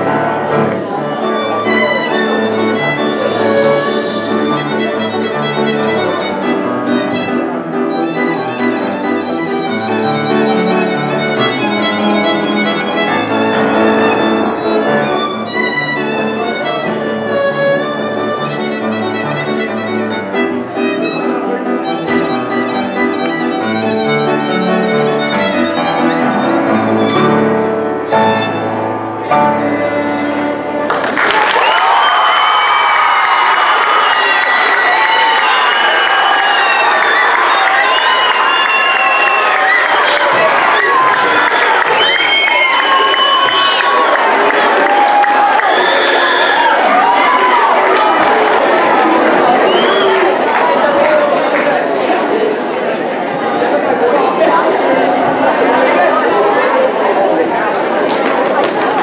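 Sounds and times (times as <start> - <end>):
bowed violin melody: 0.0 - 31.2
piano accompaniment: 0.0 - 59.0.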